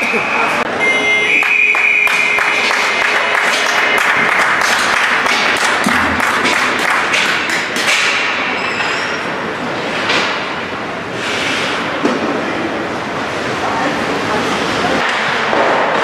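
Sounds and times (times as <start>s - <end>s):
crowd applause: 1.4s - 7.8s.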